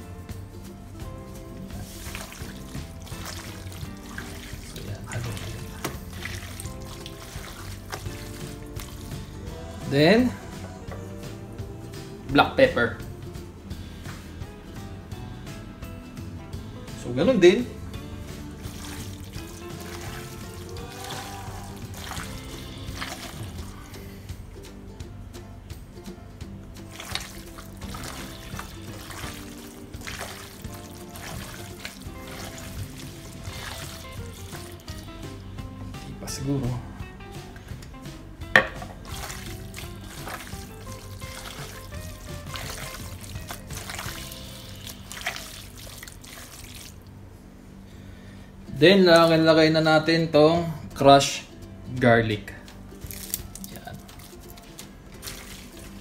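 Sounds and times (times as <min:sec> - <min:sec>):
background music: 0:00.0 - 0:56.0
wet squelching and slapping: 0:01.0 - 0:09.6, 0:18.2 - 0:24.2, 0:26.8 - 0:35.5, 0:38.7 - 0:47.2, 0:52.6 - 0:56.0.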